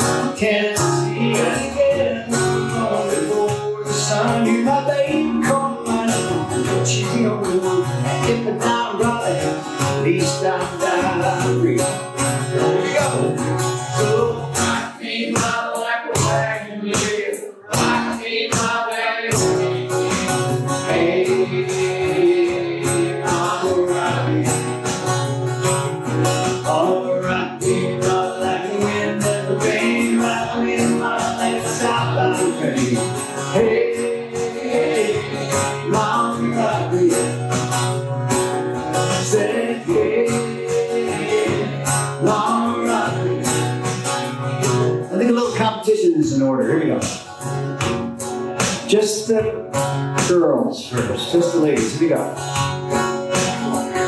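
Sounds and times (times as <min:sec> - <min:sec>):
man singing: 0:00.0 - 0:25.2, 0:26.0 - 0:37.7, 0:38.9 - 0:43.9, 0:45.0 - 0:47.2, 0:48.8 - 0:52.5
acoustic guitar strumming: 0:00.0 - 0:54.0.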